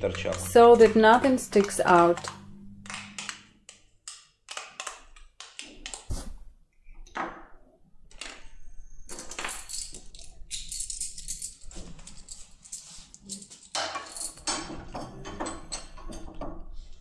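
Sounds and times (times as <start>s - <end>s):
metallic rattling and scraping: 8.2s - 16.6s
metal parts clicking and knocking: 9.1s - 16.6s.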